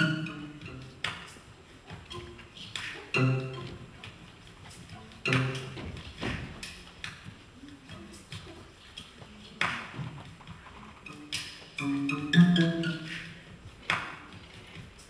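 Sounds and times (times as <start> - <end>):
sharp percussive hits: 5.2 - 6.8.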